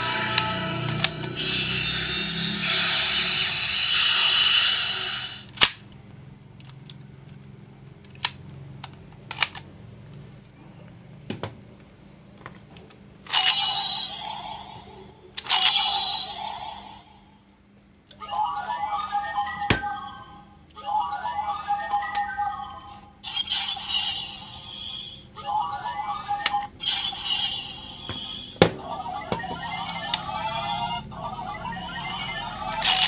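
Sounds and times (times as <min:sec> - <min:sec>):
electronic toy sound effect: 0:00.0 - 0:05.5, 0:13.3 - 0:17.1, 0:18.2 - 0:33.0
plastic toys clicking and knocking: 0:32.7 - 0:33.0.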